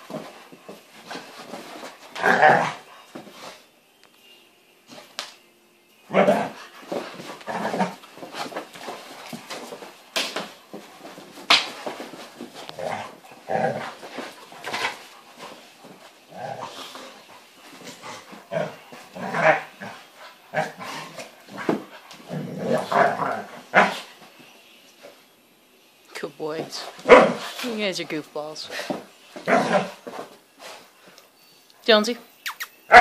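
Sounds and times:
dogs growling: 1.1s - 2.9s, 6.1s - 8.5s, 12.5s - 24.1s, 28.8s - 30.2s
dogs barking: 27.0s - 27.4s.

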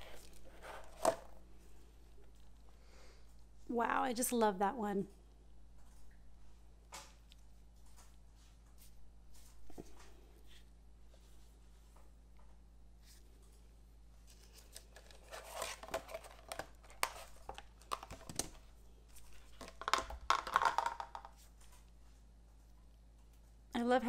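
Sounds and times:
plastic mold crinkling and clicking: 14.6s - 21.9s.

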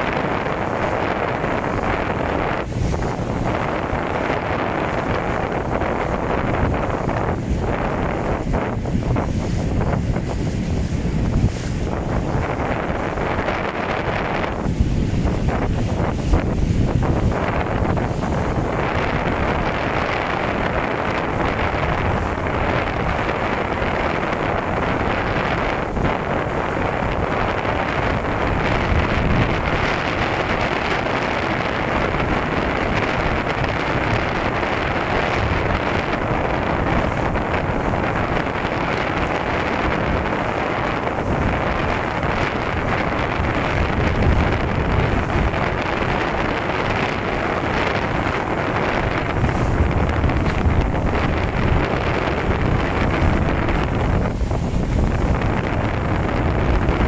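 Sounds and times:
rushing water and waves: 0.0s - 57.0s
wind buffeting microphone: 0.0s - 57.0s.

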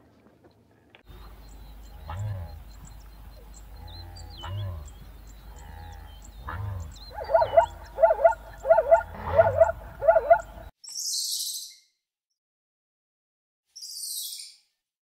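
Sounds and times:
animal calling: 1.1s - 10.7s.

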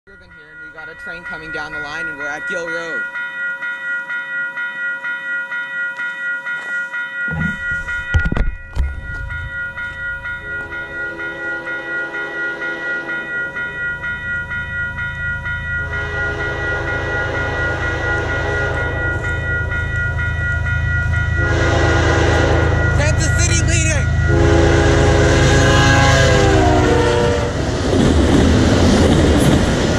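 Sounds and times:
railroad crossing bell ringing: 0.0s - 27.6s
train horn blasts: 11.1s - 13.4s, 15.9s - 19.1s, 21.4s - 23.2s, 24.2s - 27.6s.

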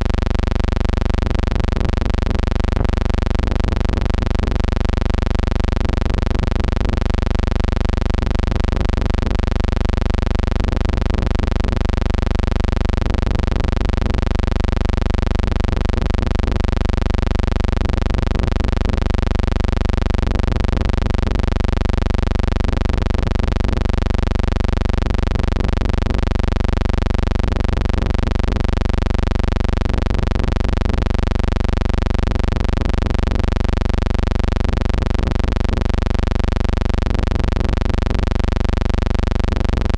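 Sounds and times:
loud low hum with overtones: 0.0s - 39.9s.

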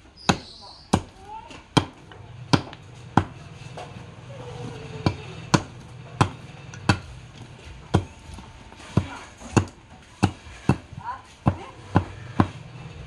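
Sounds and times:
machete chopping wood: 0.2s - 3.4s, 5.0s - 7.1s, 8.8s - 12.6s.

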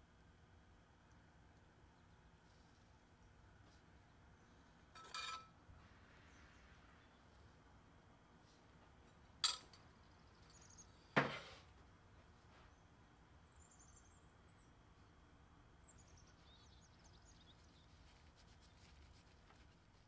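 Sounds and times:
metal spoon clinking ceramic bowl: 5.0s - 5.5s
faint high bird chirps: 10.0s - 11.2s, 13.5s - 14.8s, 15.8s - 18.9s.

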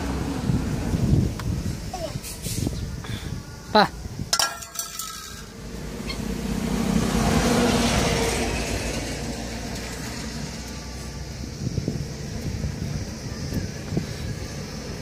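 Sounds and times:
passing vehicle engine: 0.0s - 1.9s, 5.2s - 15.0s.

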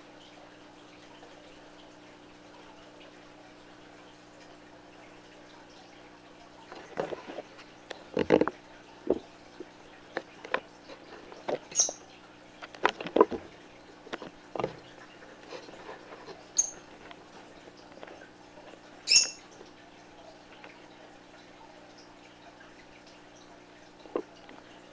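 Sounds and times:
budgerigar chirps: 11.7s - 12.0s, 19.1s - 19.4s.

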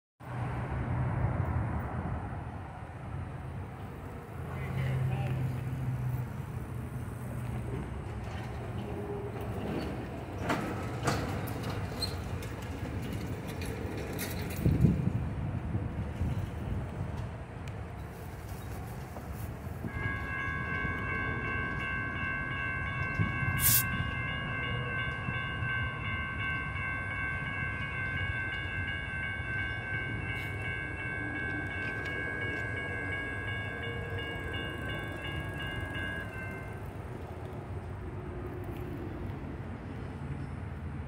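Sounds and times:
electronic crossing warning bell: 19.8s - 37.1s
short sharp hiss: 23.6s - 23.9s.

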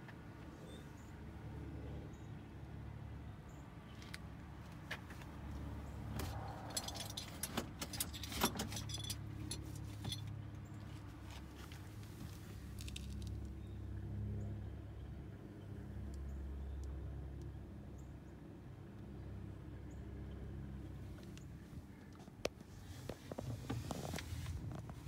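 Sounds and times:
light metallic jingling and clicking: 6.4s - 10.9s.

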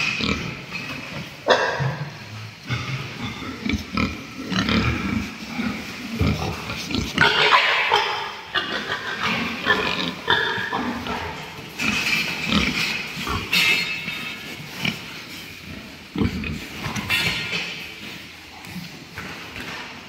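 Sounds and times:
pigs grunting: 0.0s - 20.0s
pigs squealing: 2.7s - 15.0s.

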